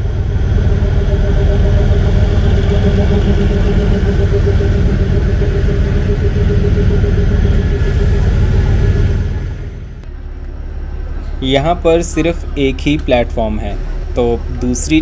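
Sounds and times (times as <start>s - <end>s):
held mid-pitched tone: 0.0s - 14.8s
diesel locomotive engine drone: 0.0s - 15.0s
low rumble of train: 0.0s - 15.0s.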